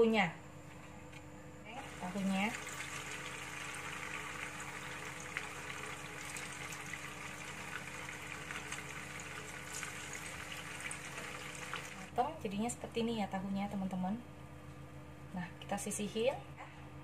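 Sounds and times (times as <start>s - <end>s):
tofu sizzling in hot oil: 1.9s - 12.1s.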